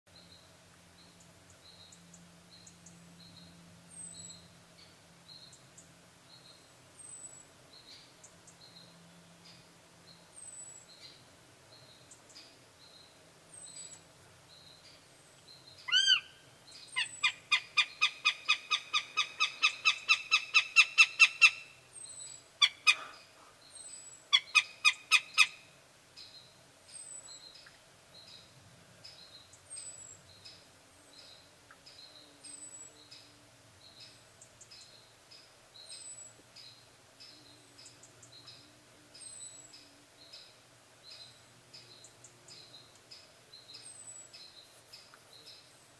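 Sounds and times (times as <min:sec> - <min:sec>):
faint songbirds: 0:00.1 - 0:45.9
hawk calling: 0:15.9 - 0:16.4, 0:17.0 - 0:21.7, 0:24.3 - 0:25.6.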